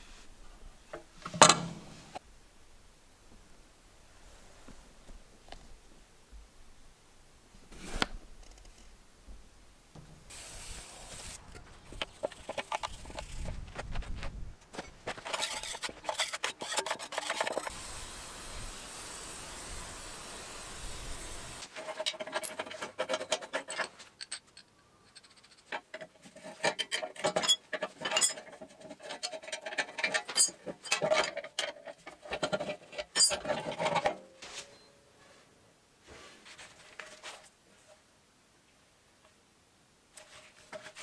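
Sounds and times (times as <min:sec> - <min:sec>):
metal parts scraping: 0:11.4 - 0:13.5, 0:14.8 - 0:17.7, 0:21.6 - 0:34.8.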